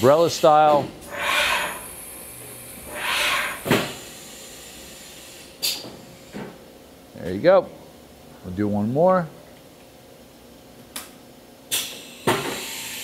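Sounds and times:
air hissing bursts: 0:00.2 - 0:02.2, 0:02.8 - 0:06.5.

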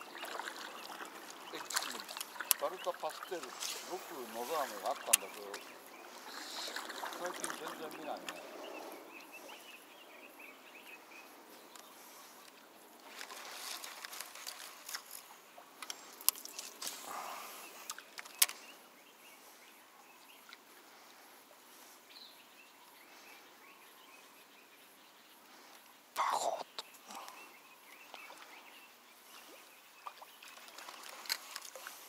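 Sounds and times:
quiet outdoor ambience: 0:00.0 - 0:32.0
rustling handling noise: 0:13.0 - 0:15.3.

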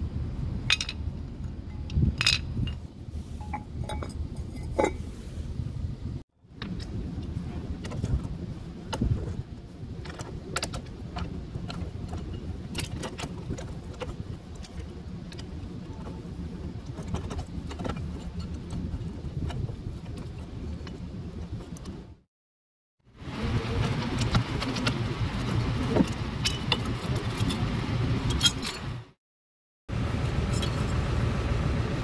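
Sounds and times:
steady low rumble: 0:00.0 - 0:22.2.

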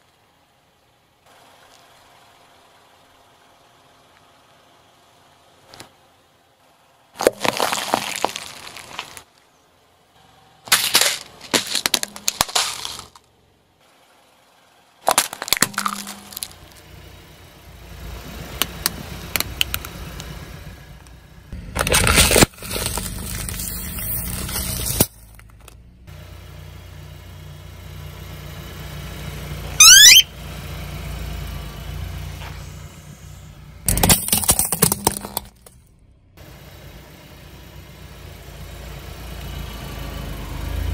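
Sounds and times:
car engine running low: 0:00.0 - 0:40.9
tyre crunching and cracking objects: 0:07.2 - 0:09.4, 0:10.7 - 0:13.3, 0:15.0 - 0:16.8, 0:21.6 - 0:25.8
sharp rising squeak: 0:29.8 - 0:30.3.

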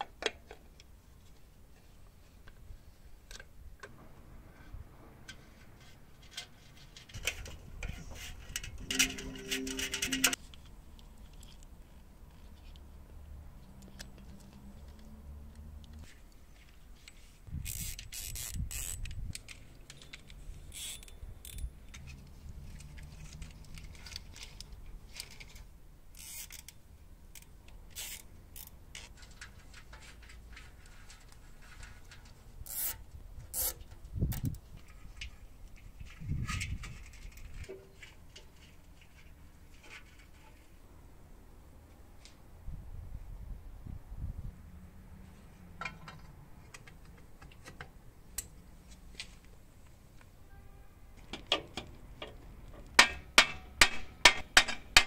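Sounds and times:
metal tool clicks and clinks: 0:08.8 - 0:10.4.

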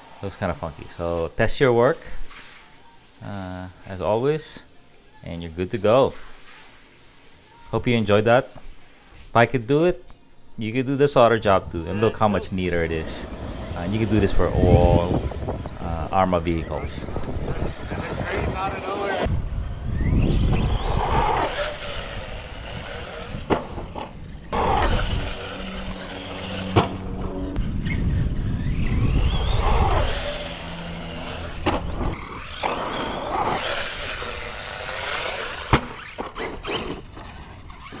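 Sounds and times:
electric motor whining: 0:11.6 - 0:38.0.

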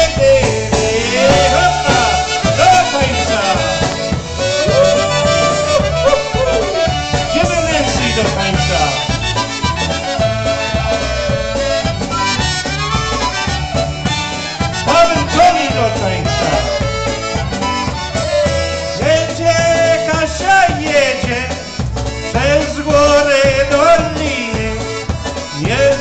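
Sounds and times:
polka band playing: 0:00.0 - 0:26.0
clarinet melody: 0:01.0 - 0:19.4.

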